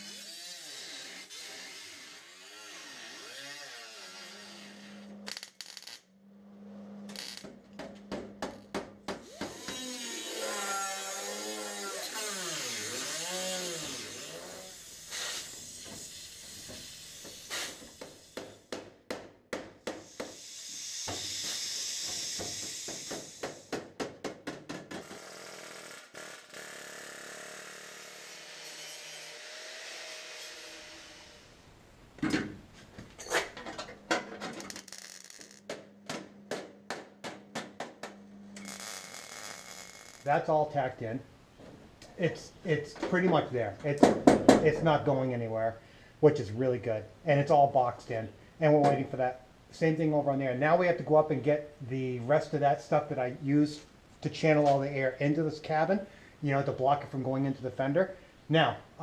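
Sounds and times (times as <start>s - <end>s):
cutting tool hissing: 9.2s - 18.6s, 20.0s - 23.7s.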